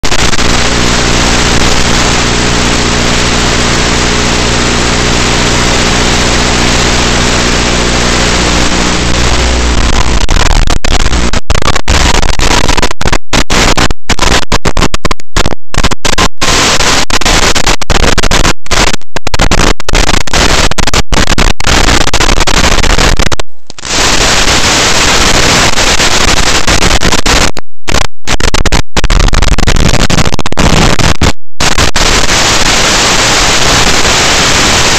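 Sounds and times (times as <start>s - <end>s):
hum of pitched tones: 0.0s - 20.7s
radio static hiss: 0.0s - 34.9s.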